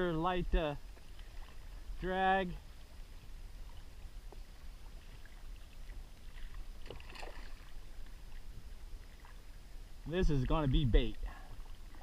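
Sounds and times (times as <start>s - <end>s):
water lapping against hull: 0.0s - 12.0s
fish splashing: 6.3s - 7.9s.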